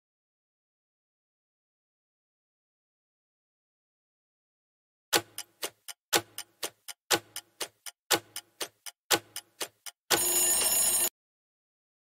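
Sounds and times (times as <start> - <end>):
clock ticking: 5.1 - 11.1
bell ringing: 10.1 - 11.1.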